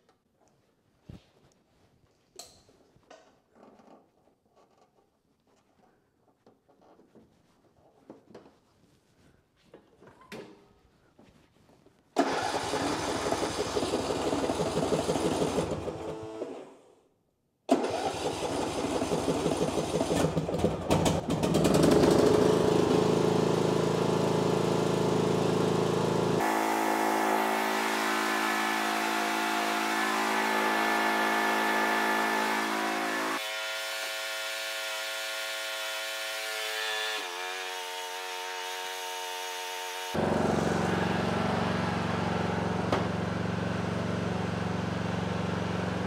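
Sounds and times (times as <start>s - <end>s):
riding mower engine: 12.2s - 16.6s, 17.7s - 37.0s, 40.2s - 46.0s.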